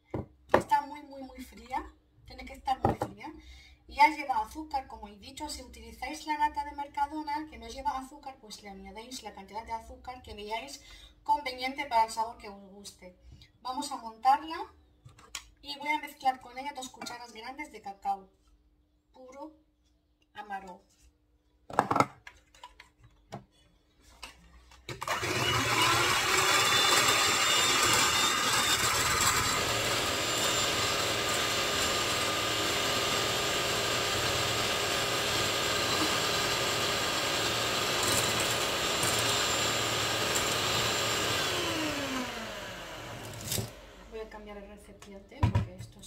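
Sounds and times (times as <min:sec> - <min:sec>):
electric hand mixer whine: 0:24.9 - 0:44.2.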